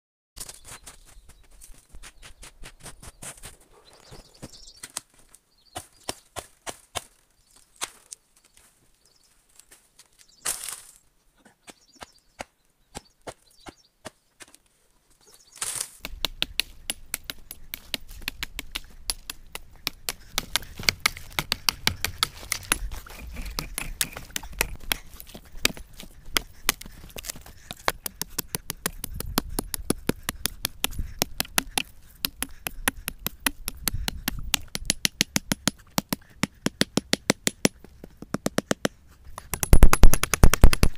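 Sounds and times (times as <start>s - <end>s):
hatchet chopping wood: 5.8s - 7.1s, 16.0s - 40.9s.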